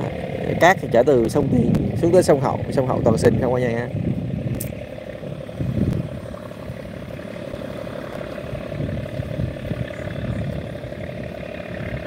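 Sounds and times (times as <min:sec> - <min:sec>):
diesel engine droning: 0:00.0 - 0:12.0.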